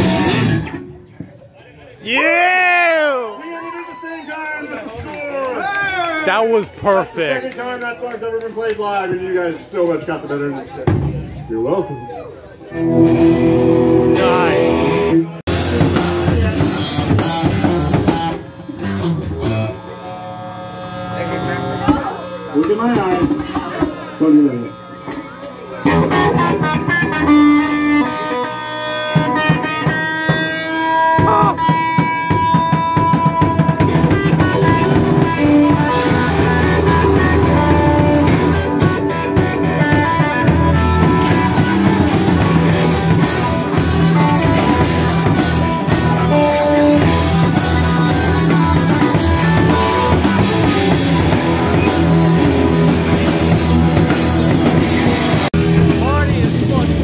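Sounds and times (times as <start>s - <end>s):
live rock band playing: 0.0s - 1.3s, 12.4s - 57.0s
drums and cymbals: 0.0s - 1.4s, 10.9s - 12.1s, 15.5s - 20.0s, 20.8s - 57.0s
electric guitar held notes: 12.7s - 57.0s.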